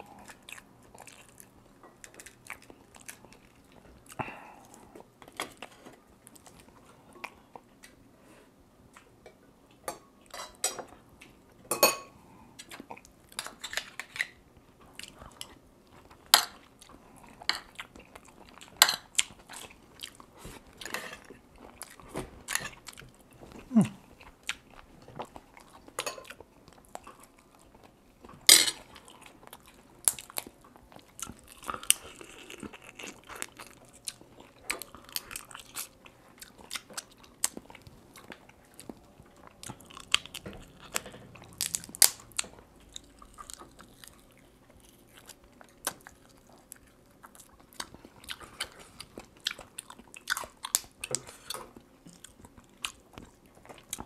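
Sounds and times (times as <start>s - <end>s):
man chewing and biting: 28.8s - 54.0s.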